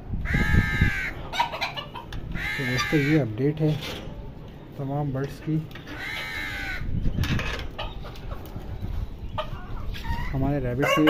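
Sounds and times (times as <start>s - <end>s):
chicken calls: 0.2s - 3.4s, 5.8s - 11.0s
chickens clucking: 0.3s - 11.0s.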